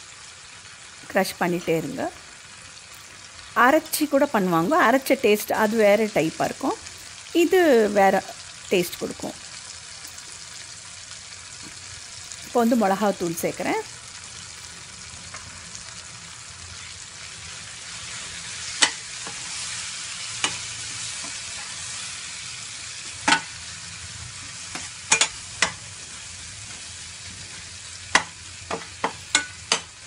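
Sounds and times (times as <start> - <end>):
tomatoes sizzling in oil: 0.0 - 30.0
spoon knocking and scraping pan: 23.1 - 23.6, 24.7 - 30.0.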